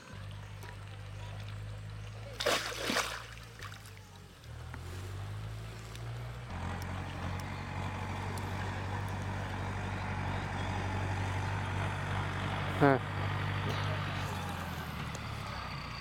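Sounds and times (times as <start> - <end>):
motor engine humming: 3.4 - 16.0.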